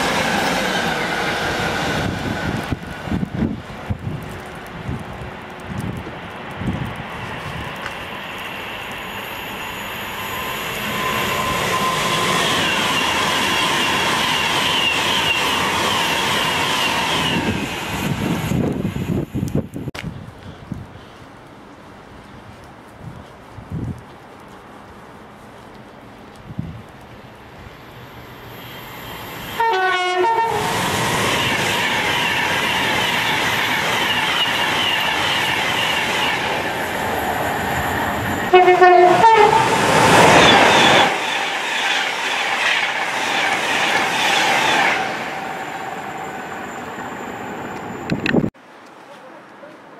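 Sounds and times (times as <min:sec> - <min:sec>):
train passing at speed: 0:00.0 - 0:19.8, 0:24.5 - 0:48.5
two-tone train horn: 0:29.6 - 0:30.8, 0:38.5 - 0:39.8.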